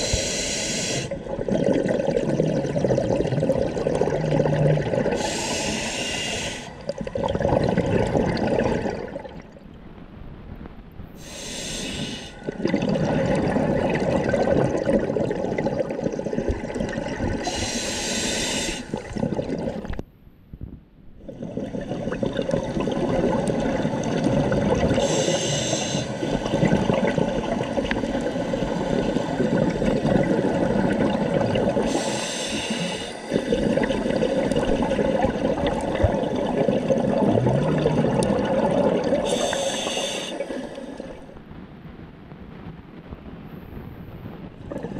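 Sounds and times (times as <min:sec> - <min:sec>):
hissing regulator inhalation: 0:00.0 - 0:01.2, 0:05.2 - 0:06.8, 0:11.2 - 0:12.6, 0:17.4 - 0:19.1, 0:25.0 - 0:26.5, 0:31.8 - 0:34.2, 0:39.2 - 0:41.2
gurgle of exhaled bubbles: 0:01.1 - 0:05.8, 0:06.4 - 0:09.6, 0:12.3 - 0:17.8, 0:18.7 - 0:20.0, 0:21.2 - 0:41.5, 0:44.5 - 0:44.9.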